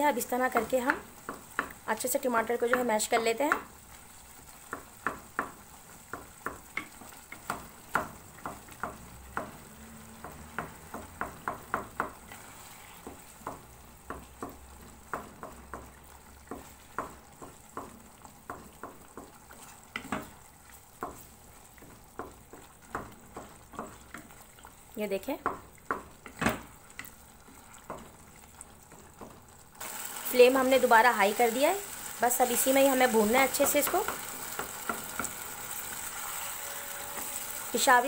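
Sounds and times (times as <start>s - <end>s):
faint sizzle: 0.0s - 38.0s
utensil tapping a pan: 0.5s - 1.8s, 4.7s - 12.3s, 13.0s - 20.4s.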